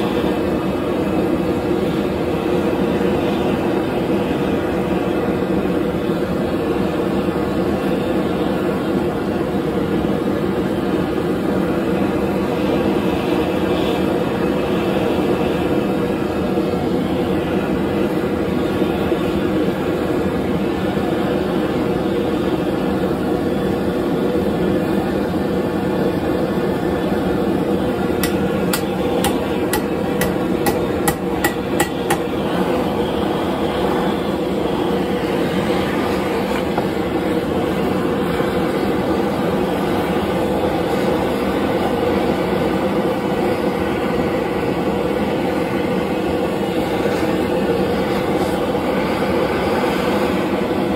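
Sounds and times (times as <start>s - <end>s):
propane torch burning: 0.0s - 50.9s
hammer blows on metal: 28.2s - 32.3s.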